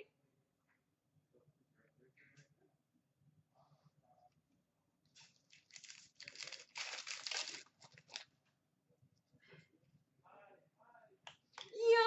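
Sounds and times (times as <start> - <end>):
wrapper tearing and crinkling: 5.2 - 8.3.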